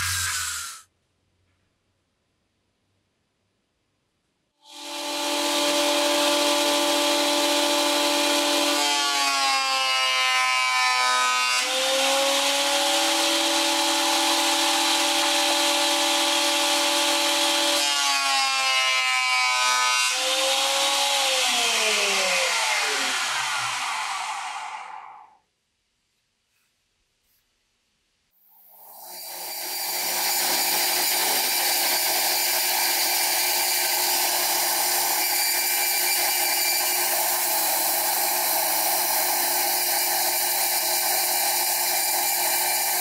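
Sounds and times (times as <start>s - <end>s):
jointer whining: 29.2s - 43.0s.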